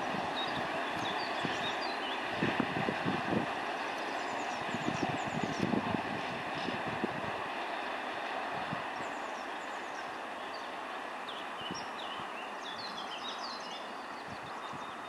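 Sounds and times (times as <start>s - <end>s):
train wheels rumbling on track: 0.0s - 15.0s
small birds chirping: 0.3s - 2.3s, 9.0s - 15.0s.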